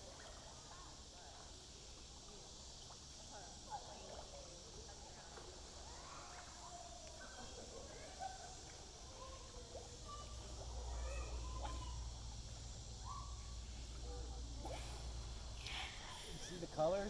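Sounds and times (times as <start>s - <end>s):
steady high hiss: 0.0s - 17.0s
faint calls: 5.7s - 17.0s.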